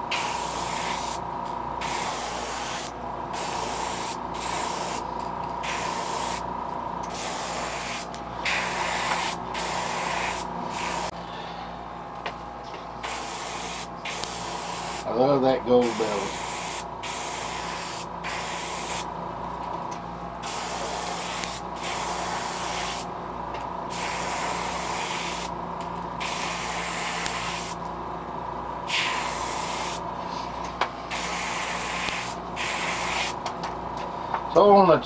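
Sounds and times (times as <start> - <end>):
steady hum: 0.0 - 35.0
airbrush hissing: 0.1 - 1.2, 1.8 - 6.5, 7.1 - 11.2, 13.0 - 15.1, 15.8 - 19.1, 20.4 - 23.1, 23.9 - 25.5, 26.2 - 27.8, 28.9 - 30.0, 31.1 - 33.4.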